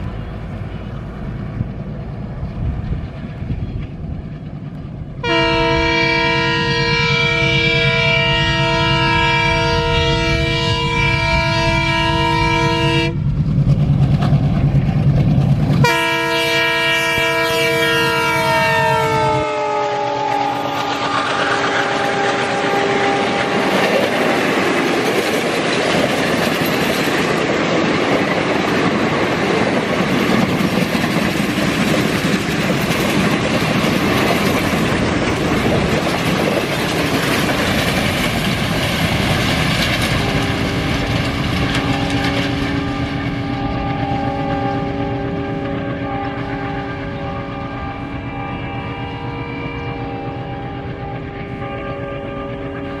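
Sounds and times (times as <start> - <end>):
locomotive horn: 5.2 - 13.3, 15.8 - 24.5, 40.1 - 53.0
train wheels clattering over rails: 13.0 - 16.2, 20.6 - 45.9.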